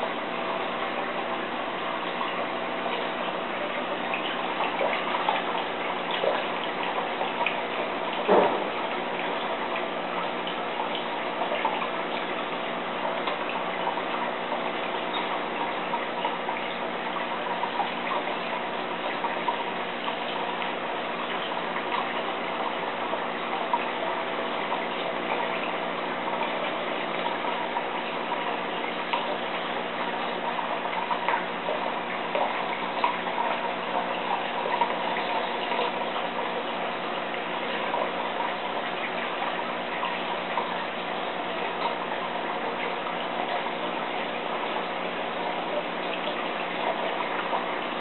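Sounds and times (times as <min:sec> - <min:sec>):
water trickling: 0:00.0 - 0:48.0.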